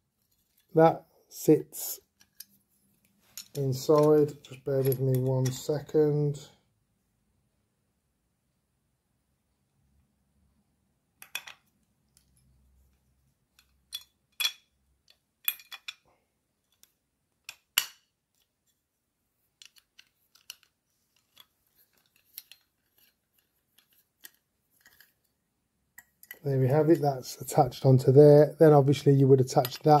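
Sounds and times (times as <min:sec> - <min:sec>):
metal parts clicking and clinking: 0:03.3 - 0:05.7, 0:13.5 - 0:16.0, 0:19.6 - 0:25.3, 0:29.5 - 0:30.0.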